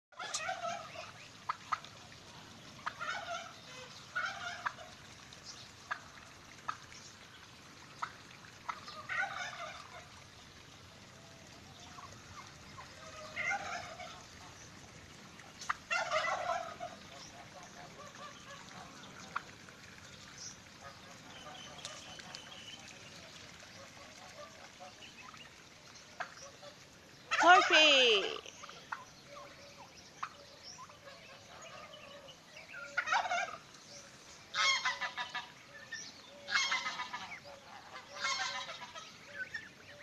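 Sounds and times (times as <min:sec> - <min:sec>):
turkeys gobbling: 0:00.2 - 0:02.1, 0:02.8 - 0:05.0, 0:05.9 - 0:06.1, 0:08.0 - 0:10.1, 0:11.8 - 0:14.6, 0:15.5 - 0:19.6, 0:26.2 - 0:35.6, 0:36.4 - 0:39.7.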